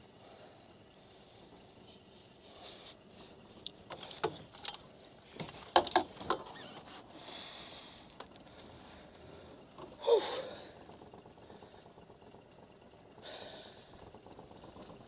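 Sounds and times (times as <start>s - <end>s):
sharp knocks and clicks in boat: 3.6s - 7.4s.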